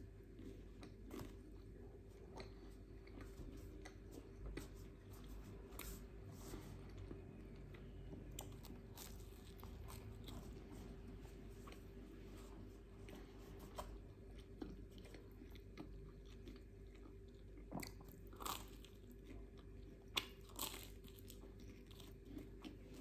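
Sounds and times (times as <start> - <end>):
pastry bites and chewing: 13.8 - 23.0.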